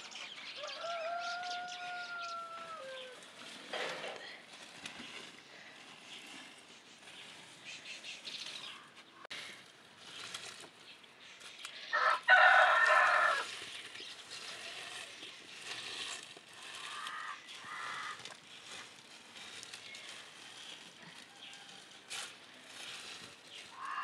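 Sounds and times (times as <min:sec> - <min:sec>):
rooster crowing: 0:00.6 - 0:03.2, 0:11.9 - 0:13.5
faint bird calls: 0:16.7 - 0:18.2, 0:23.5 - 0:24.0.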